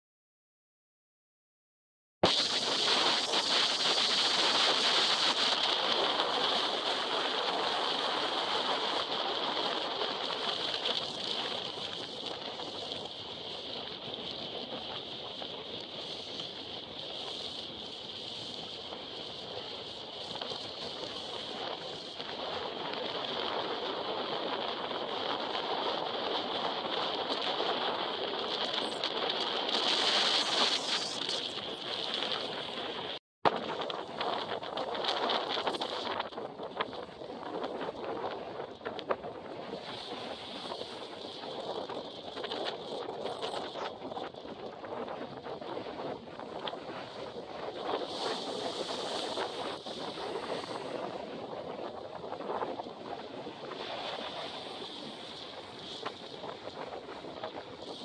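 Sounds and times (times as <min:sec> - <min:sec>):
strong wind: 0:02.2 - 0:58.0
surf breaking on pebble beach: 0:45.9 - 0:58.0.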